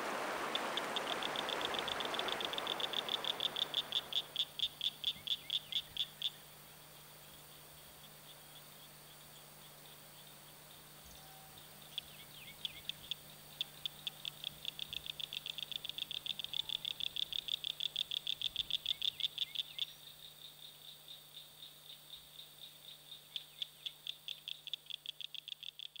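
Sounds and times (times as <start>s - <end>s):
frog calling in clicks: 0.5s - 6.4s, 11.9s - 19.9s, 23.4s - 26.0s.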